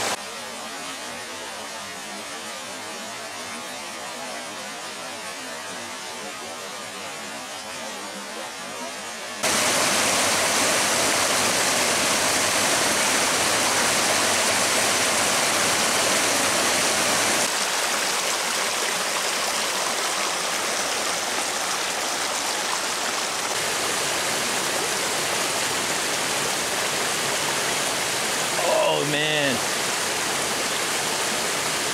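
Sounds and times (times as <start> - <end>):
stream rushing over rocks: 9.4 - 31.9.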